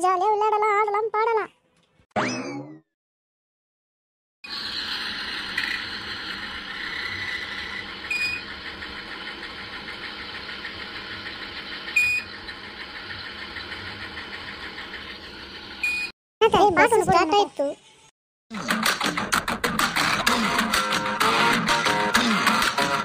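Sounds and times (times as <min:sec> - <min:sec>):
bus engine running: 0:04.6 - 0:15.9.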